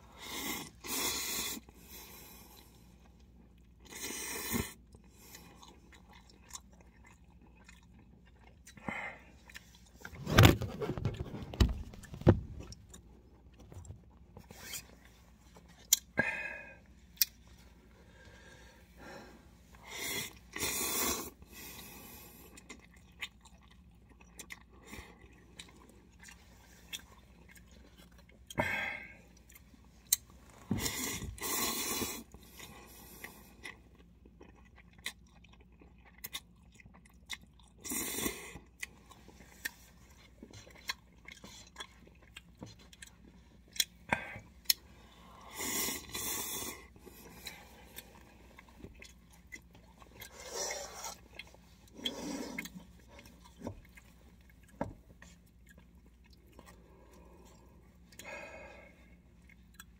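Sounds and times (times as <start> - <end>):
slurping noodles: 0.2 - 2.4, 19.9 - 22.4, 30.8 - 33.4, 50.2 - 53.5
wet chewing: 4.9 - 16.1, 29.4 - 58.4.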